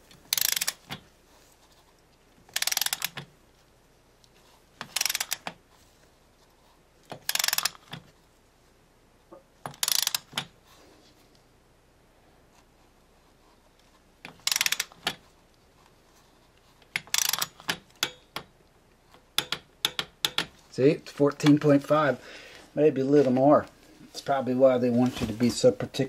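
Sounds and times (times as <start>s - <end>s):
torque wrench ratchet clicking: 0.3s - 1.0s, 2.5s - 3.2s, 4.8s - 5.5s, 7.2s - 7.9s, 9.7s - 10.4s, 14.4s - 15.0s, 17.0s - 18.2s.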